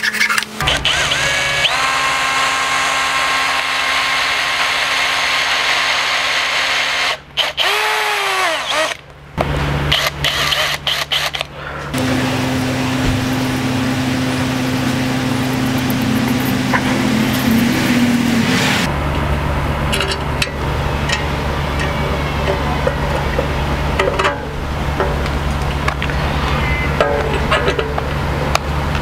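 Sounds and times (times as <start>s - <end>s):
power driver whirring: 0.1s - 9.1s, 9.9s - 18.9s
electric drill boring into wood: 0.6s - 9.0s, 9.9s - 12.1s.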